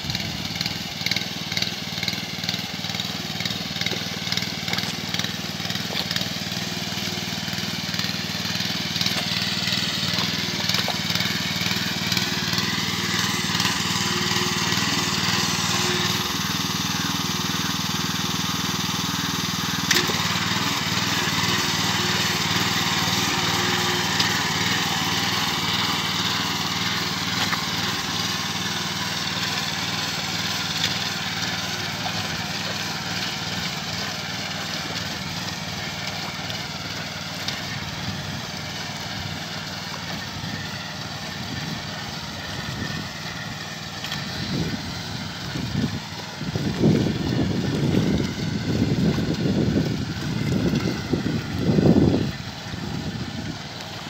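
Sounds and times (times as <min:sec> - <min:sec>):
small engine running: 0:00.0 - 0:54.0.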